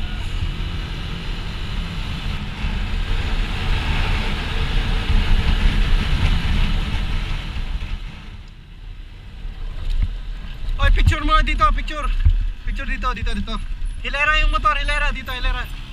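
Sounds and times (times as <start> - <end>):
motorcycle engine cruising: 0.0 - 8.5
road noise: 0.0 - 15.9
wind rumble on microphone: 0.0 - 15.9.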